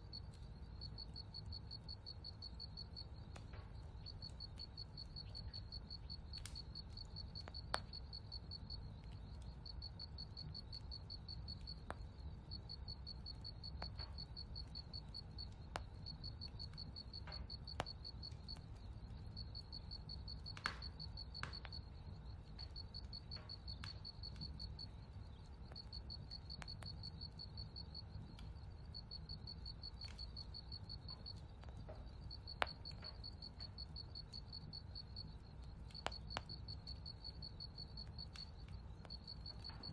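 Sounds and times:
cricket chirping: 0:00.0 - 0:39.9.

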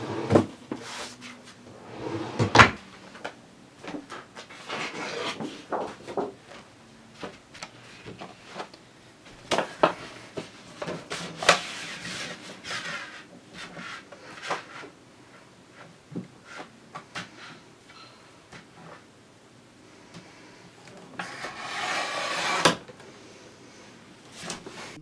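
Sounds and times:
paper rustling and rubbing: 0:10.2 - 0:14.9.

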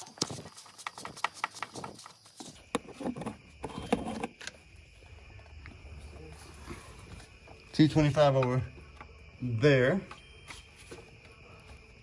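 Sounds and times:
handling and scraping: 0:00.0 - 0:05.0.

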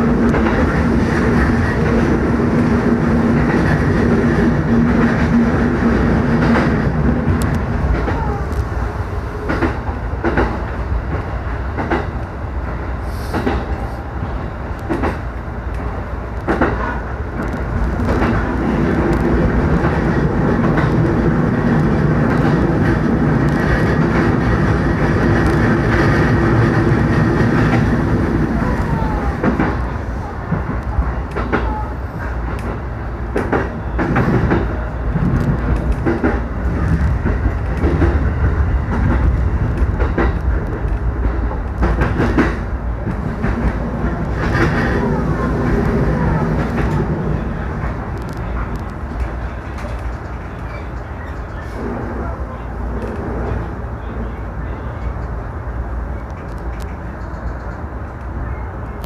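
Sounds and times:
train wheels rumbling: 0:00.0 - 0:59.0.

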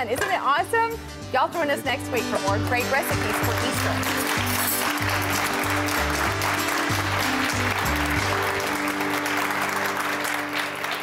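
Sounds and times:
closing theme music: 0:01.3 - 0:11.0
studio audience applauding: 0:02.6 - 0:11.0.

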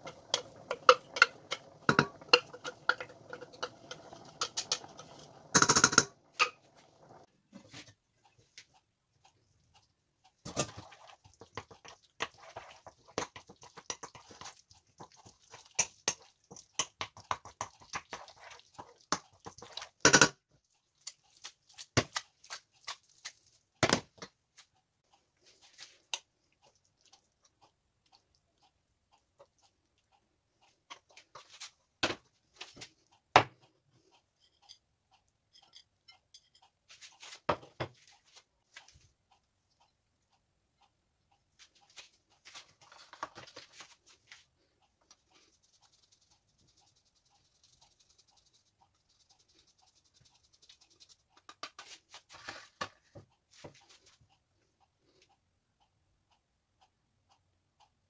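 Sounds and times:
spoon knocking pan: 0:00.0 - 0:07.2, 0:10.4 - 0:20.3
sauce squelching and scraping: 0:10.6 - 0:16.7, 0:17.4 - 0:19.9.

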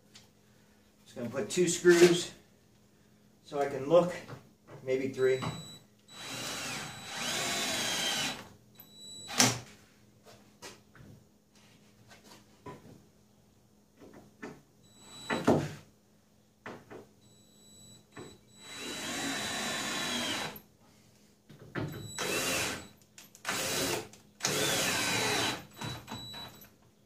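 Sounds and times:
cordless drill driving screws: 0:06.1 - 0:08.5, 0:18.6 - 0:20.6, 0:22.0 - 0:26.5.

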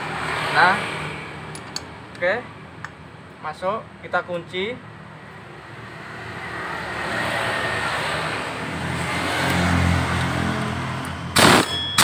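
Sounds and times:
passing vehicle engine: 0:00.0 - 0:02.1, 0:05.1 - 0:11.7.

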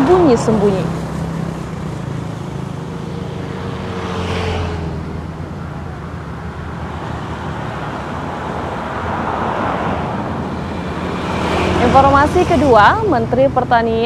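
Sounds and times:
road traffic noise: 0:00.0 - 0:14.0.

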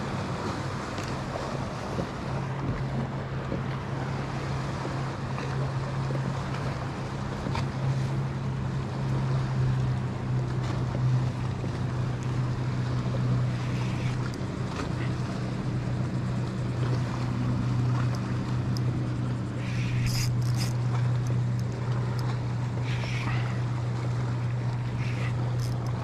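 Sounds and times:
motorboat engine humming: 0:00.0 - 0:26.0
water noise: 0:00.0 - 0:26.0
wind: 0:00.0 - 0:26.0
short high-pitched whir: 0:19.6 - 0:20.8.

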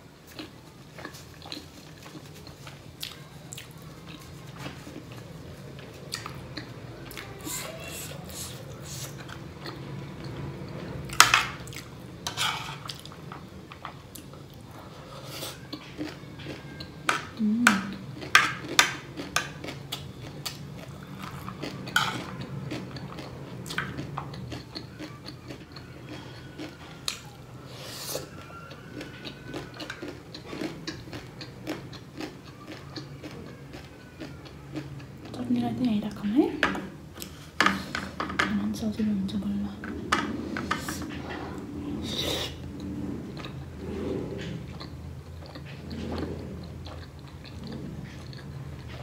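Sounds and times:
faint low hum: 0:00.0 - 0:49.0
chewing: 0:00.2 - 0:35.8, 0:39.8 - 0:49.0
metal spoon scraping a plate: 0:12.2 - 0:13.1, 0:21.9 - 0:22.4.

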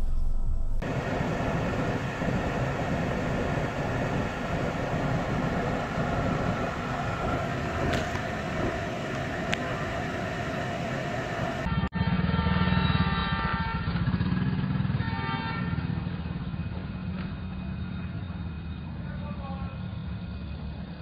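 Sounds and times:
traffic rumble: 0:00.0 - 0:21.0.

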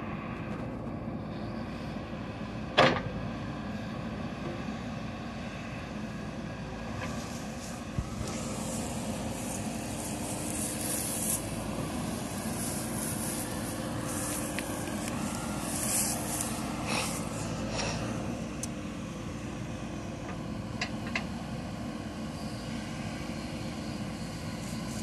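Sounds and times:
diesel engine running: 0:00.0 - 0:25.0
hydraulic hiss: 0:07.1 - 0:18.3.

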